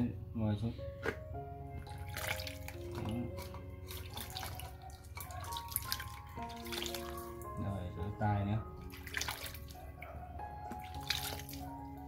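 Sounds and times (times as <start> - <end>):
bath water running and splashing: 1.8 - 7.6, 8.8 - 10.0, 10.7 - 12.0.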